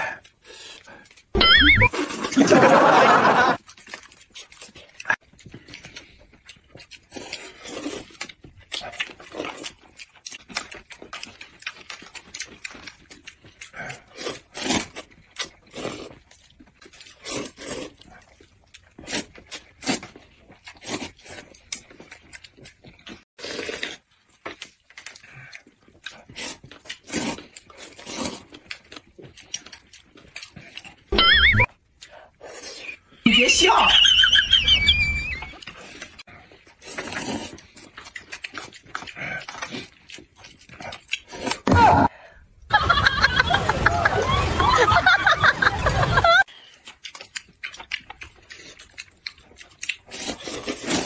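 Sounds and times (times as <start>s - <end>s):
people slurping noodles: 0.0s - 4.0s, 6.9s - 9.8s, 11.3s - 21.6s, 23.1s - 24.2s, 25.0s - 29.0s, 30.5s - 42.2s, 49.9s - 51.0s.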